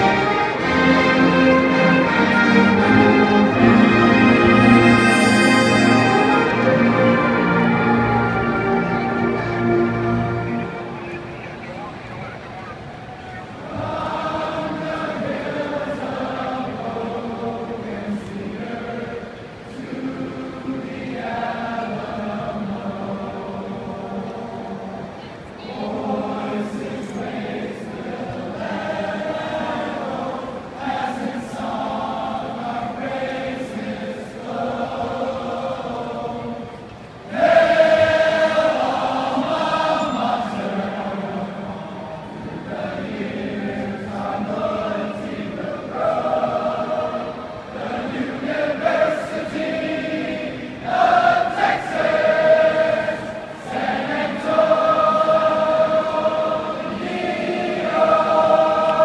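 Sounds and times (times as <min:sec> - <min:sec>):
crowd singing in unison: 0:00.0 - 0:59.0.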